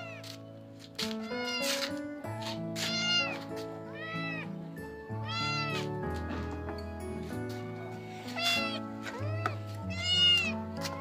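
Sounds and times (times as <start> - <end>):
background music with held notes: 0.0 - 11.0
kittens meowing: 1.2 - 1.8, 2.8 - 4.6, 5.2 - 5.9, 8.2 - 10.7.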